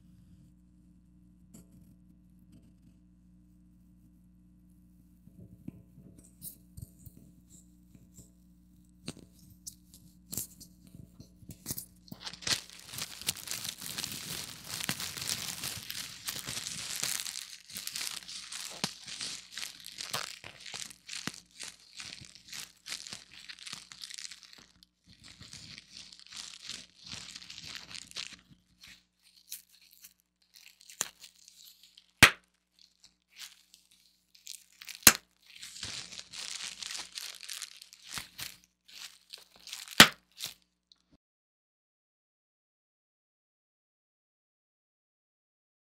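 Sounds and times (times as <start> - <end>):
bubble wrap pops: 9.0 - 40.6
bubble wrap crinkling: 9.0 - 41.0.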